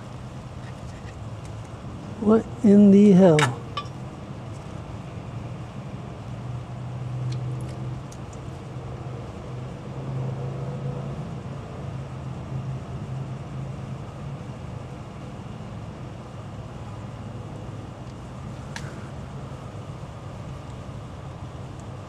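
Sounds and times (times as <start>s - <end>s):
low mechanical hum: 0.0s - 22.0s.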